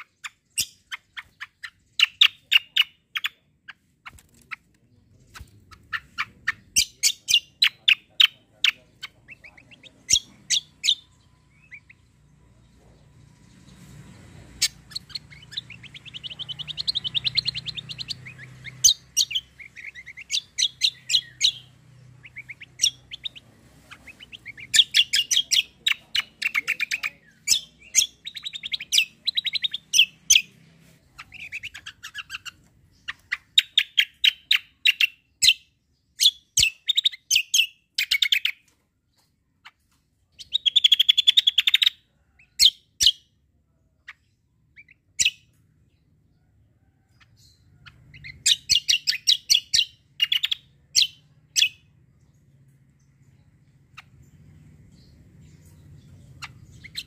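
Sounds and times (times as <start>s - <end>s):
songbird trilling: 0.0s - 3.9s, 5.3s - 12.2s, 14.6s - 38.6s, 47.1s - 51.9s, 53.9s - 57.0s.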